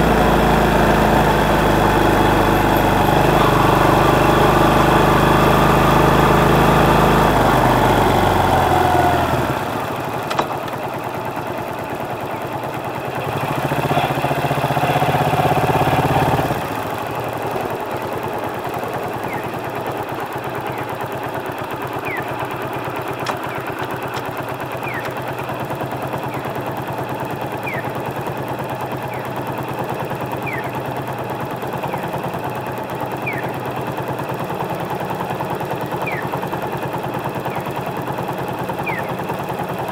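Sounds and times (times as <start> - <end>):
motorcycle engine: 0.0 - 39.9.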